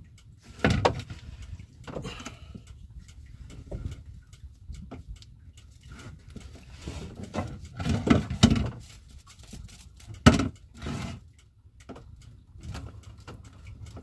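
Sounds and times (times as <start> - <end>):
knocks against wooden boat: 7.3 - 8.7, 10.2 - 10.5.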